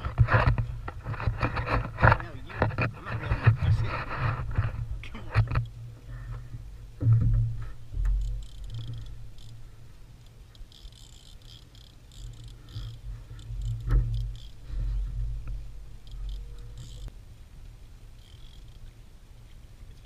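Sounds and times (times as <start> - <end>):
low rumble with thumps: 0.0 - 10.2, 12.0 - 18.2
fishing reel ticking: 8.1 - 17.1, 18.2 - 18.9.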